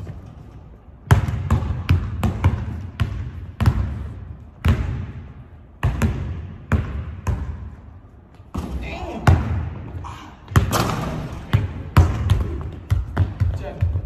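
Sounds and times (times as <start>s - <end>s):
basketball bouncing on hardwood floor: 1.0s - 7.8s, 10.5s - 14.0s.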